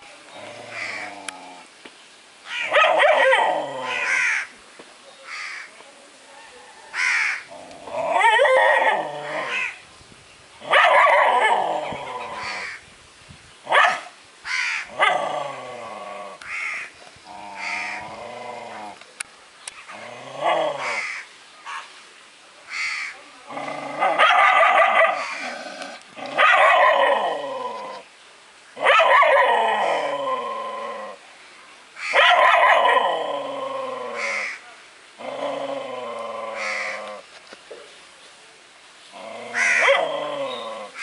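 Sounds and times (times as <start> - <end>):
dog barking: 2.7 - 3.4, 10.7 - 11.5, 13.7 - 14.1, 24.0 - 25.4, 26.4 - 27.1, 28.8 - 29.5, 32.1 - 33.0, 39.6 - 40.1.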